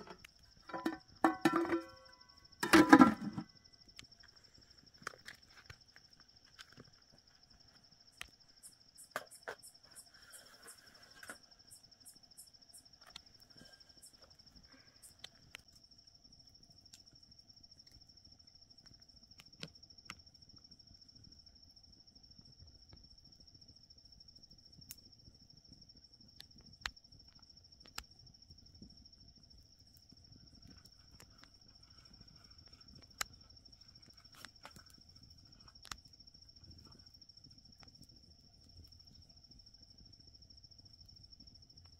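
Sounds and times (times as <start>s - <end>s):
plate and bread handled: 0.0s - 3.5s
crickets trilling: 0.0s - 41.9s.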